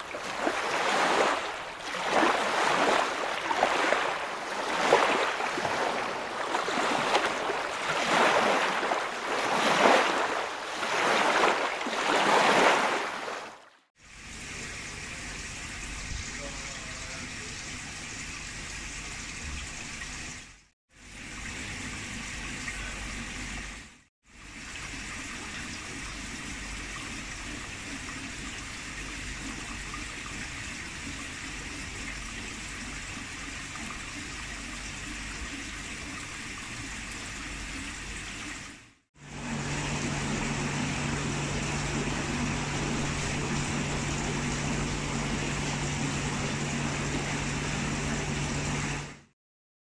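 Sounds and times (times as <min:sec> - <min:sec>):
aquarium water bubbling: 0:00.0 - 0:20.4, 0:21.1 - 0:49.3
steady low hum: 0:39.3 - 0:49.1.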